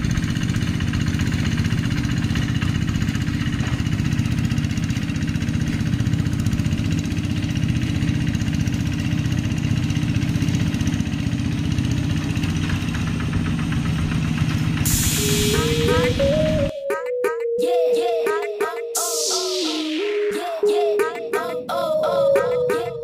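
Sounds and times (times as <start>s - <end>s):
diesel engine running: 0.0s - 16.7s.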